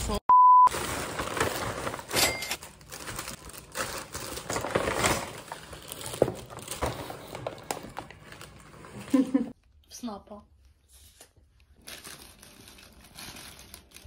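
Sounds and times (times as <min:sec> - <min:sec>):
paper bag rustling: 0:00.7 - 0:09.5, 0:11.8 - 0:14.0.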